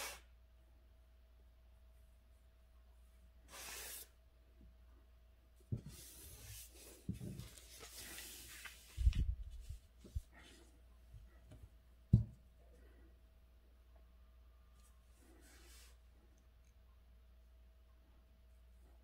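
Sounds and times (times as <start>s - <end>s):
faint steady hum: 0.0s - 19.0s
ink brush sweeping across paper: 3.5s - 4.2s, 5.9s - 10.2s, 15.2s - 16.0s.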